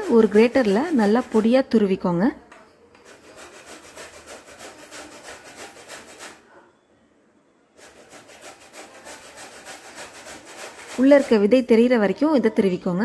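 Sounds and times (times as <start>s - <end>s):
fruit scraping on metal grater: 0.0s - 1.5s, 3.0s - 6.4s, 7.8s - 11.5s.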